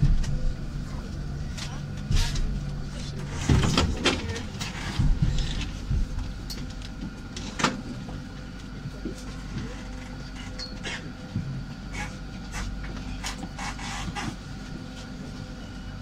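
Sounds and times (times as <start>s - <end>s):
tram humming: 0.0s - 16.0s.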